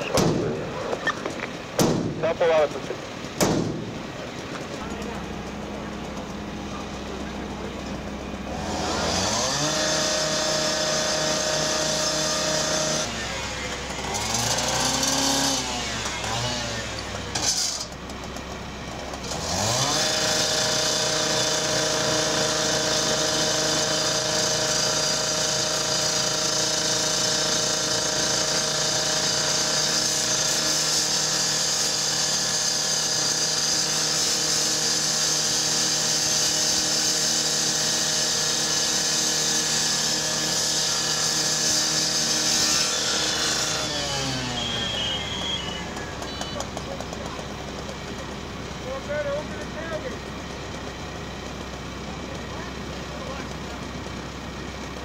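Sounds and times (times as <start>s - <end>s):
rotary saw cutting steel: 6.1s - 48.1s.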